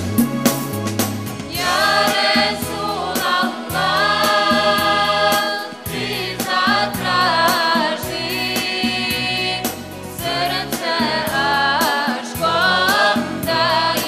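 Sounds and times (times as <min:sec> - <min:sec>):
steady beat: 0:00.0 - 0:09.0
choir singing devotional song: 0:01.5 - 0:14.0.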